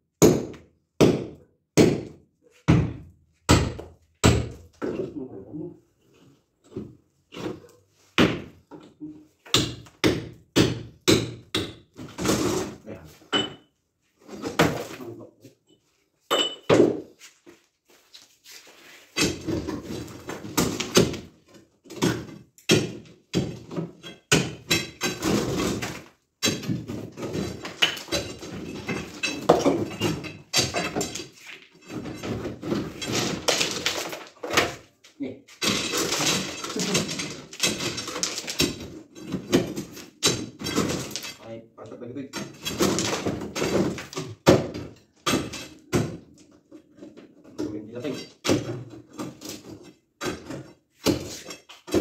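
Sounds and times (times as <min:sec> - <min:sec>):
steel bar striking masonry: 0:09.4 - 0:12.5, 0:19.2 - 0:19.7, 0:21.9 - 0:33.9, 0:35.6 - 0:41.4, 0:42.3 - 0:46.2, 0:50.2 - 0:52.0.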